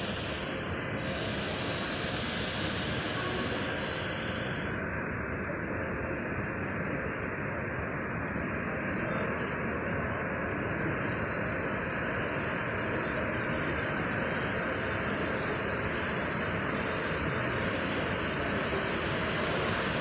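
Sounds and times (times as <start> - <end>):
high hiss: 0.0 - 4.7, 14.4 - 20.0
jet engines idling: 0.0 - 20.0.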